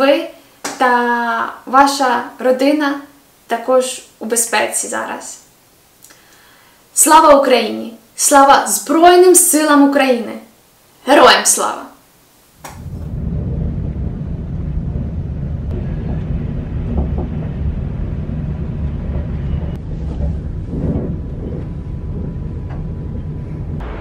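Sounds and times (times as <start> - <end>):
city background rumble: 12.6 - 24.0.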